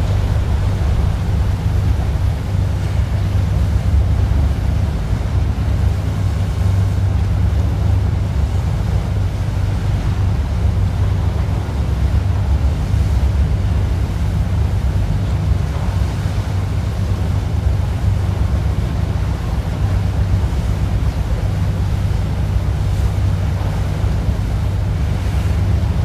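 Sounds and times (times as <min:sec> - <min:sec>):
boat engine rumble: 0:00.0 - 0:26.0
water rushing past hull: 0:00.0 - 0:26.0
wind on microphone: 0:00.0 - 0:26.0.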